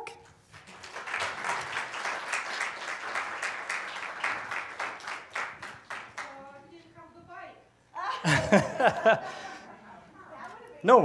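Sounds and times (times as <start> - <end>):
audience applauding: 0.6 - 6.4.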